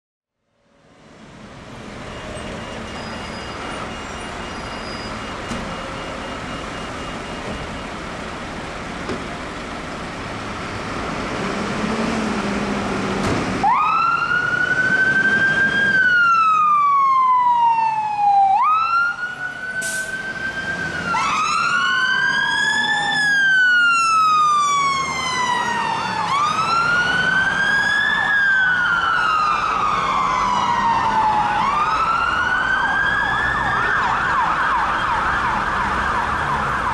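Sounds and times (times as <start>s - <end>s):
fire engine running: 0.7s - 36.9s
wail siren: 13.6s - 36.9s.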